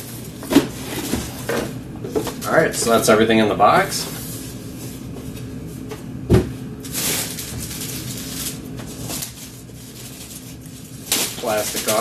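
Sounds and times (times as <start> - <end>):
plastic bag rustling: 6.8 - 12.0.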